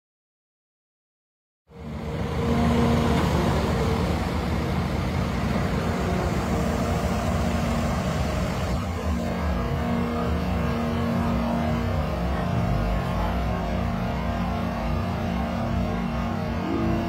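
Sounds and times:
excavator diesel engine running: 1.7 - 17.0
steady hum: 1.7 - 17.0.

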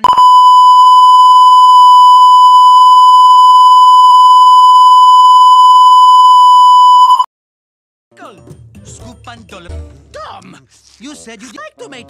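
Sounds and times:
steady electronic beep: 0.0 - 7.3.

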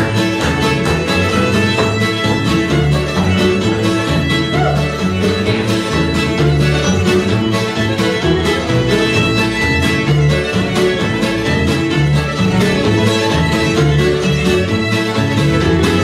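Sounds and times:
fiddle melody: 0.0 - 16.0
string band playing: 0.0 - 16.0.

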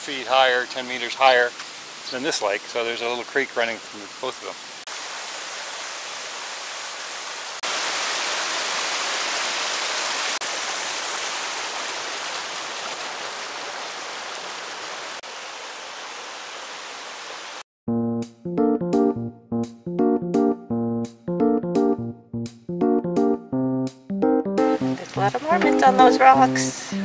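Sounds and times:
creek rushing over rocks: 0.0 - 17.6
keyboard music: 17.9 - 27.0.

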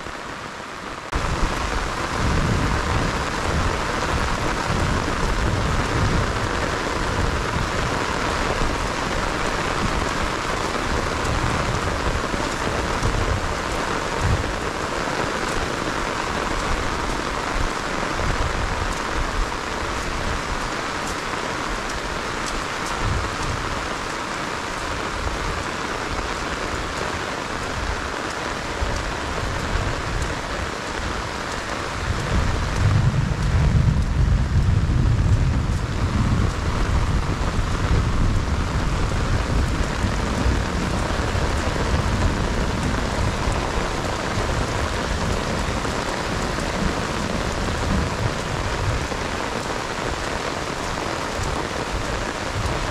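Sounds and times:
heavy rain pouring: 0.0 - 52.9
low rumbling: 31.9 - 49.2.

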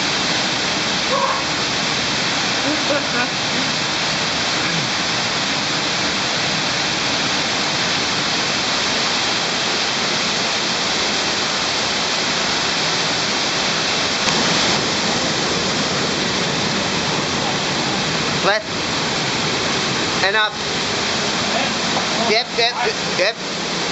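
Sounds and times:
water falling and splashing: 0.0 - 23.9.

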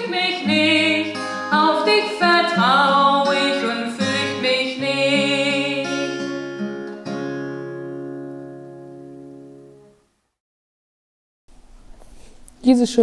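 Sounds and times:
held instrumental chords: 0.0 - 10.1.

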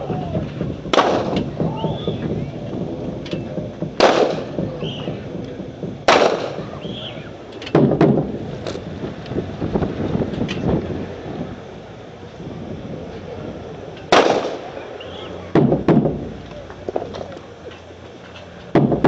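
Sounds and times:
rifle volleys echoing: 0.0 - 8.6, 14.0 - 17.3.

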